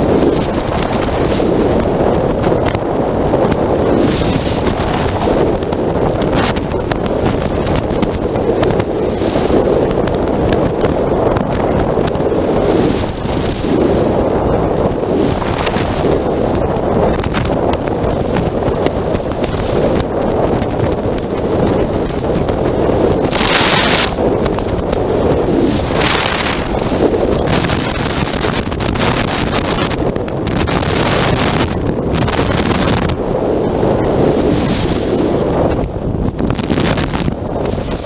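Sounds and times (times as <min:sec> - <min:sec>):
wind buffeting microphone: 0:00.0 - 0:38.0.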